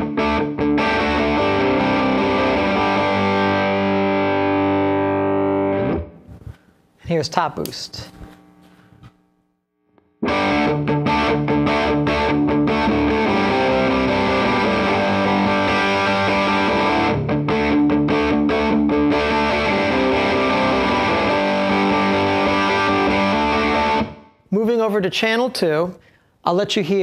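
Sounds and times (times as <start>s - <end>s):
distorted electric guitar chords: 0.0s - 6.3s, 10.0s - 24.3s.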